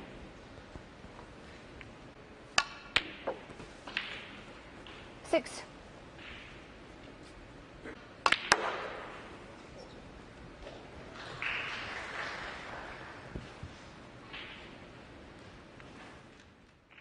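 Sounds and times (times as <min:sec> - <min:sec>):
snooker balls clicking: 0:00.0 - 0:05.3, 0:06.1 - 0:07.3, 0:08.0 - 0:09.8, 0:14.2 - 0:17.0.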